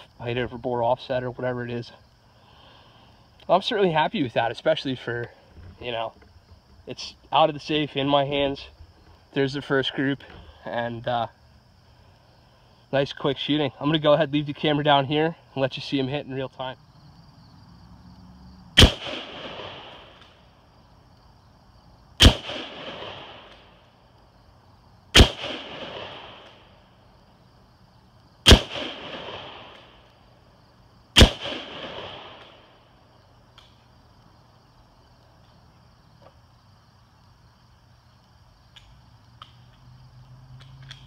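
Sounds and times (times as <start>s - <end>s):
rifle shots with echo: 18.8s - 20.3s, 22.2s - 23.8s, 25.1s - 26.7s, 28.4s - 30.0s, 31.2s - 32.8s.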